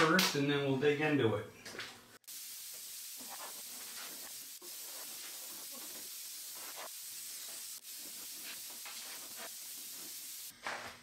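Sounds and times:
compressed air blow gun hissing: 2.2 - 10.5.

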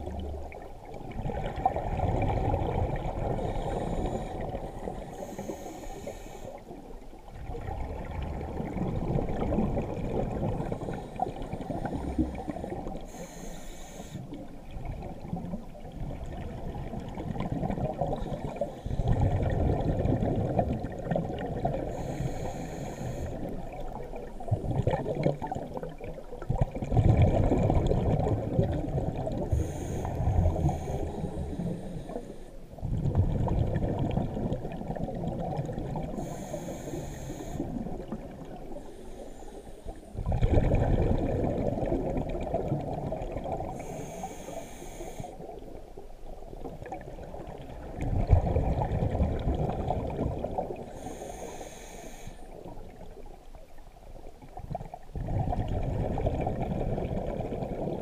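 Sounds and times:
underwater exhale bubbling: 0.0 - 58.0
scuba regulator inhale hiss: 3.3 - 6.8, 10.7 - 14.5, 18.1 - 19.2, 21.8 - 23.6, 29.5 - 32.6, 36.1 - 38.0, 38.7 - 40.2, 43.7 - 45.6, 50.8 - 52.7.

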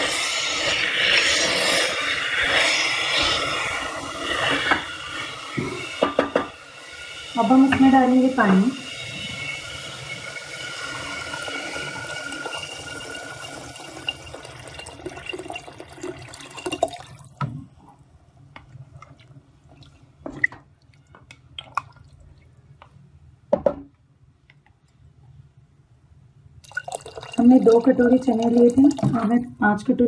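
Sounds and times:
wooden spatula stirring a pot: 0.0 - 15.3
water pouring from a jug: 9.0 - 17.4, 26.6 - 29.6.

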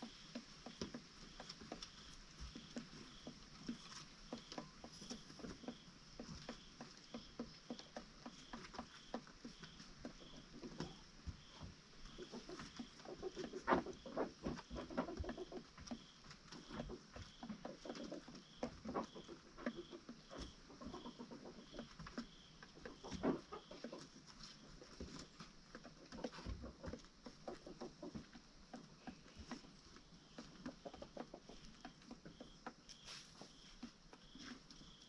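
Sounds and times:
chickens pecking: 0.0 - 35.0.

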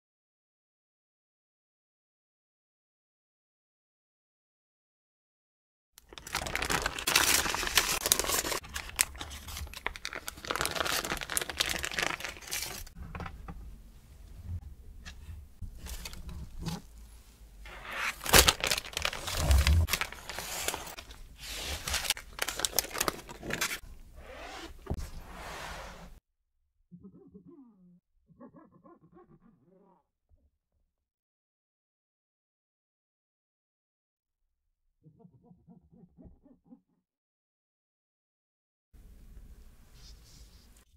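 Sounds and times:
baking parchment crinkling and tearing: 6.0 - 13.0, 17.7 - 23.8.

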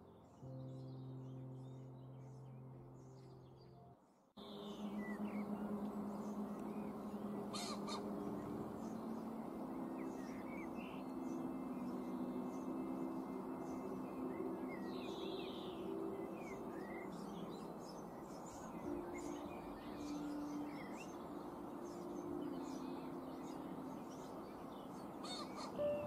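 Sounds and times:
small songbirds chirping: 0.0 - 26.0
soft background music: 0.0 - 26.0
pheasant crowing: 7.5 - 8.1.

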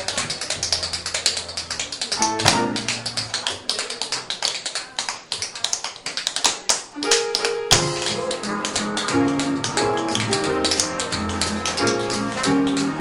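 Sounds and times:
live jazz band with upright bass: 0.0 - 3.4
tap shoes striking floor: 0.0 - 3.9, 4.8 - 13.0.

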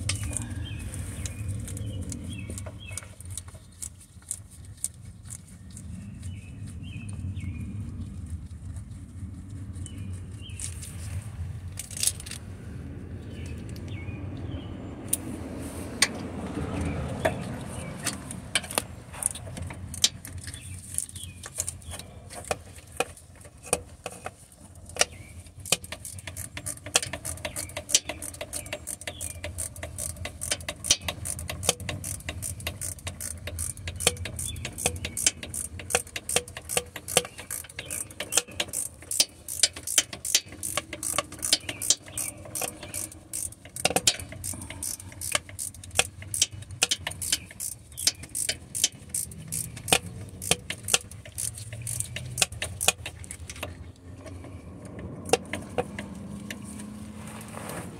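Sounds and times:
ratchet wrench clicking: 17.2 - 22.0, 23.0 - 53.7, 55.2 - 56.6.

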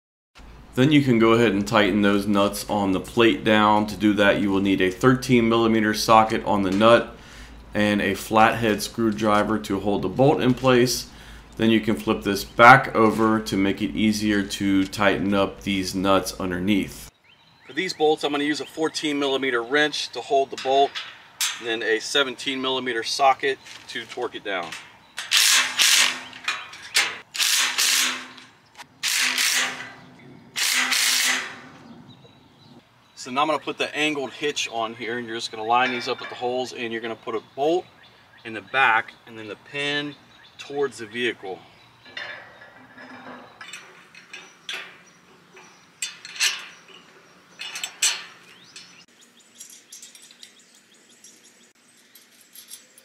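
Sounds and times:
steel bar clanking against steel: 20.5 - 21.8, 24.6 - 31.8, 35.7 - 36.8, 42.1 - 50.6
metal tapping and scraping: 20.5 - 22.1, 23.6 - 32.4, 35.6 - 37.0, 42.0 - 53.0.

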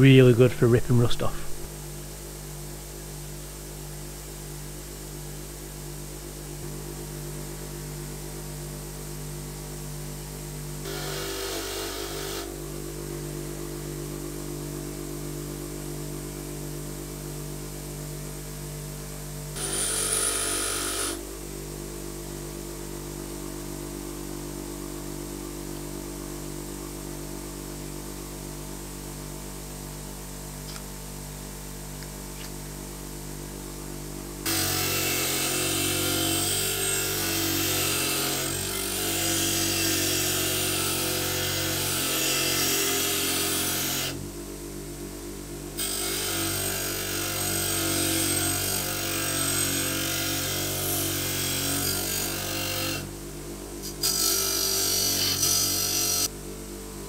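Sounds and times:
bench grinder motor hum: 10.8 - 14.0, 19.5 - 21.3, 34.4 - 44.2, 45.8 - 53.1, 53.8 - 56.3
metal touching grinding wheel whine: 19.6 - 21.2.

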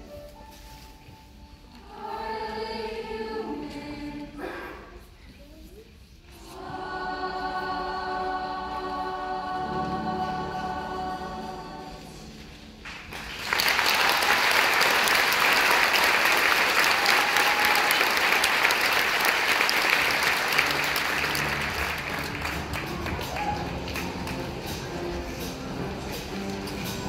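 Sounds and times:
choir holding a chord: 1.8 - 4.5, 6.4 - 12.4
audience applause: 12.8 - 25.2.

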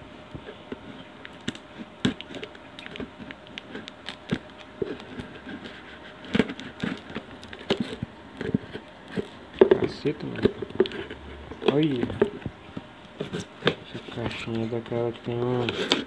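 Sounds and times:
knife scraping cardboard: 15.6 - 16.0.

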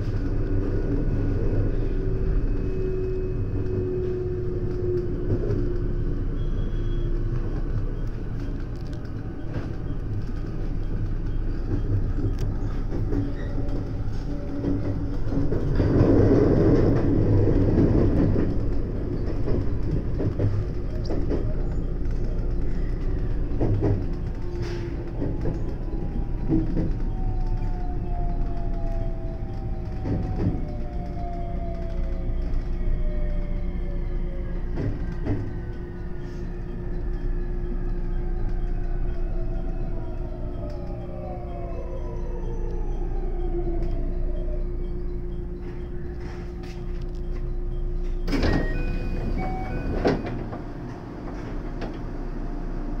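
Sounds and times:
traction motors whining: 0.0 - 53.0
train rumbling over rails: 0.0 - 53.0
electronic door chime: 35.4 - 50.6.

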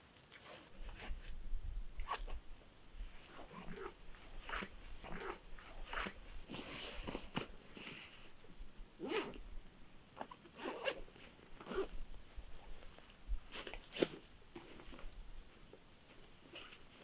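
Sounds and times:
backpack zipper pulled: 3.5 - 7.2, 9.0 - 9.4, 10.6 - 11.0, 11.6 - 12.0.

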